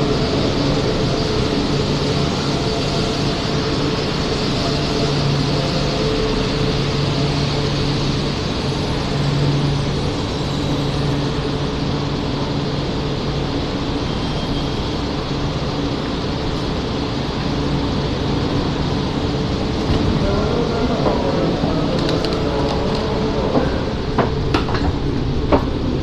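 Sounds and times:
rushing noise: 0.0 - 26.0
train hum: 0.0 - 26.0.

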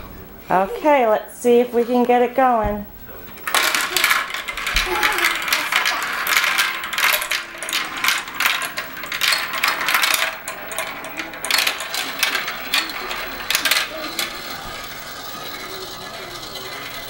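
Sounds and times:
marbles clattering down plastic track: 3.4 - 17.0.

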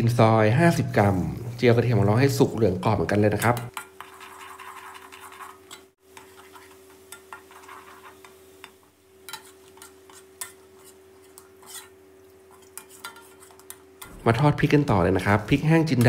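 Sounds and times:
metal spatula scraping a wok: 3.4 - 14.2
garlic frying in oil: 3.4 - 16.0.

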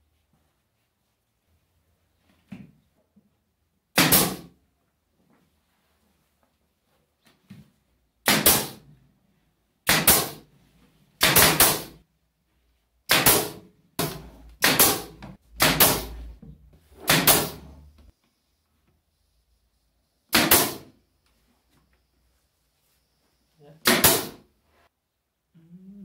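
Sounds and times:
nail gun firing: 4.0 - 4.5, 8.2 - 8.8, 9.9 - 10.4, 11.2 - 12.0, 13.1 - 16.1, 17.1 - 17.6, 20.3 - 20.9, 23.8 - 24.4.

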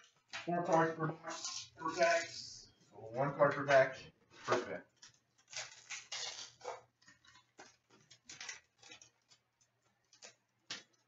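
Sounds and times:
paper rustles and light clicks: 4.4 - 11.0
card pack tearing open: 4.5 - 9.4.

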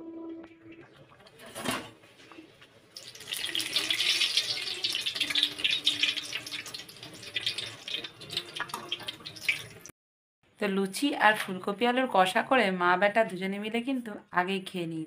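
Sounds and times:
oil sizzling and crackling: 2.8 - 9.9.

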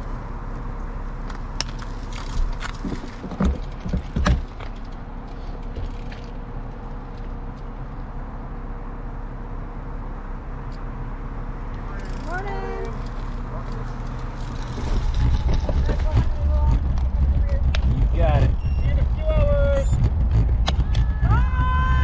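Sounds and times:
bicycle rolling noise: 1.3 - 8.2, 11.9 - 22.0
bicycle knocks and rattles: 1.6 - 7.7, 13.0 - 22.0.

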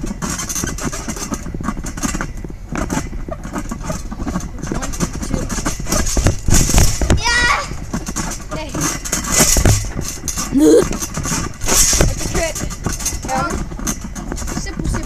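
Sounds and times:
thumps on trampoline: 0.0 - 15.0.

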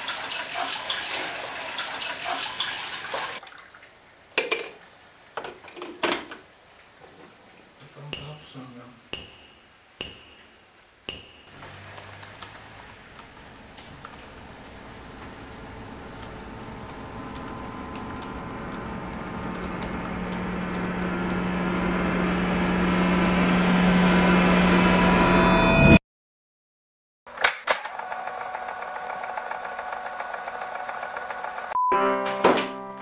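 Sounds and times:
low steady hum: 7.8 - 25.2.

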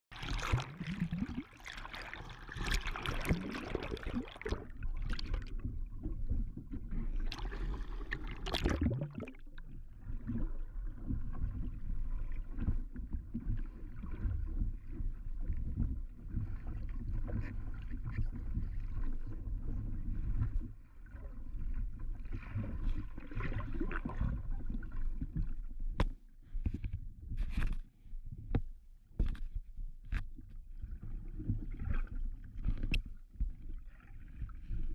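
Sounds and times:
muffled underwater water rushing: 0.1 - 26.0.

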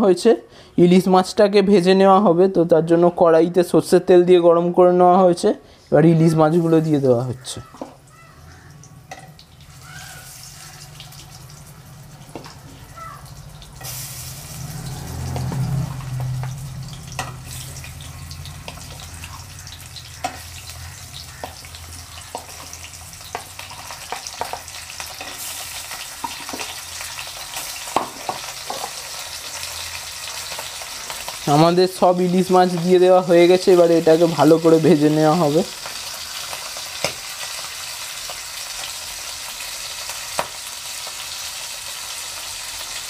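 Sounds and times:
fish sizzling in hot oil: 8.0 - 43.0.

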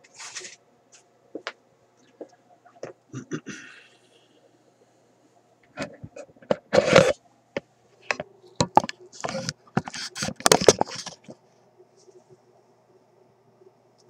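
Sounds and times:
scrapes and rustles: 0.0 - 1.1, 9.2 - 11.4.

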